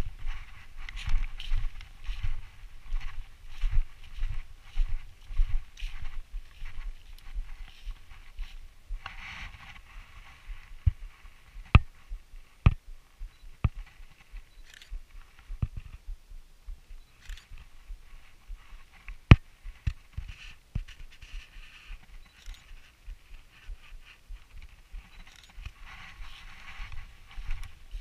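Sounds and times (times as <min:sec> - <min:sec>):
fabric rubbing on microphone: 0:00.0 - 0:11.5, 0:20.2 - 0:28.0.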